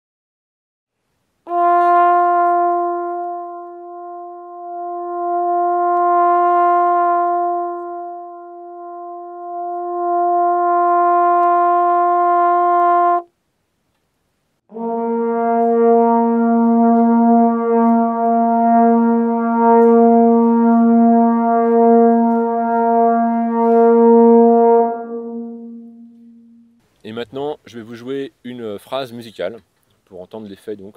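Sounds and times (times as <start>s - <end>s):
lower trombone note with reverb: 1.5s - 13.3s, 14.7s - 26.8s
trombone long note: 1.5s - 13.3s, 14.7s - 26.8s.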